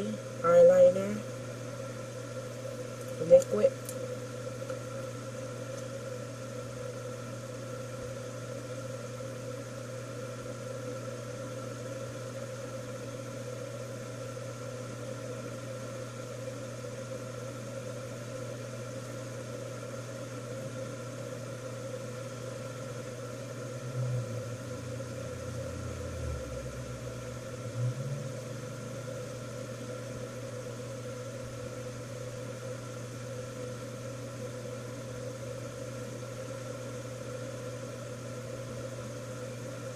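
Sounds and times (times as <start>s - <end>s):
low mechanical hum: 0.0s - 39.9s.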